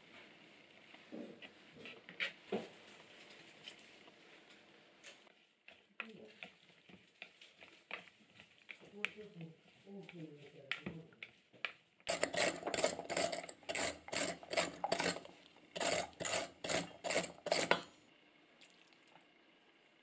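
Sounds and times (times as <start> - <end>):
rasping scraping strokes: 12.1 - 17.8.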